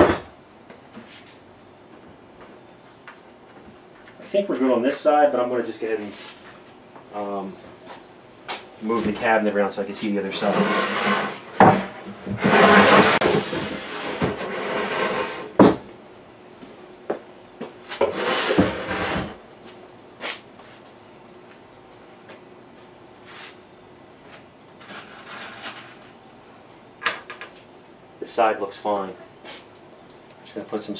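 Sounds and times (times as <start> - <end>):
wooden box scraping on bench: 10.4 - 15.8, 17.9 - 19.4.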